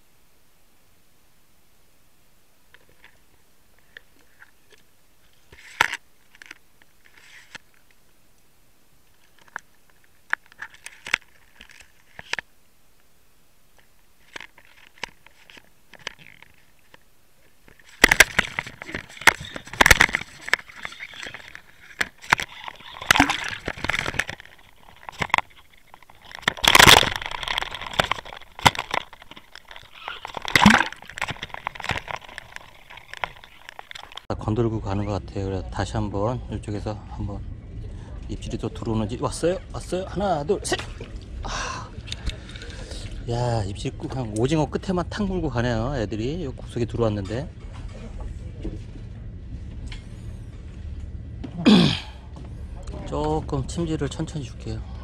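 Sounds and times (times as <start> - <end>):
water splashing and sloshing: 14.2 - 34.3, 39.4 - 44.3.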